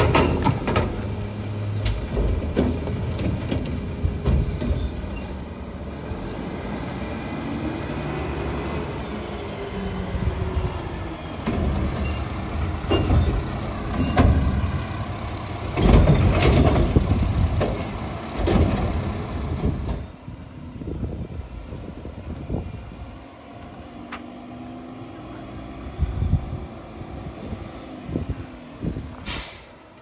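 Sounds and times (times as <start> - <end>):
garbage truck engine: 0.0 - 30.0
air brake hiss: 29.2 - 29.9.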